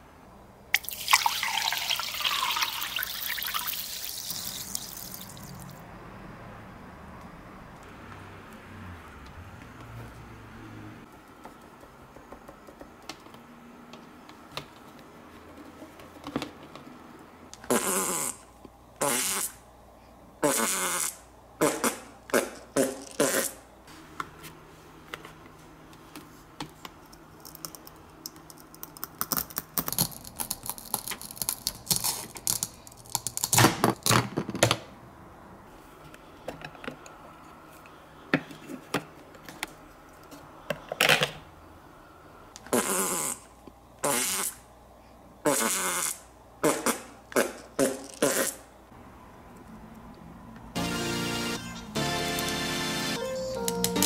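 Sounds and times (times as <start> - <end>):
cartoon fart sound effects: 17.6 - 18.4, 19.0 - 19.6, 20.4 - 23.6, 42.7 - 43.4, 44.0 - 44.6, 45.5 - 48.6.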